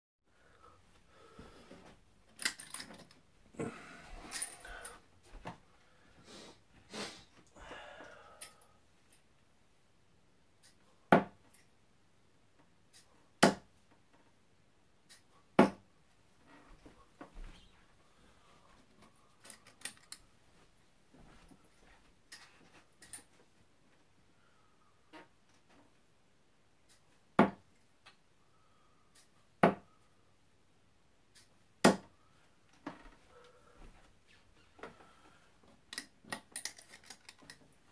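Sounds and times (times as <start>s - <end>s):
darts striking dartboard: 13.4s - 13.7s, 15.6s - 15.8s, 29.6s - 29.9s, 31.8s - 32.1s.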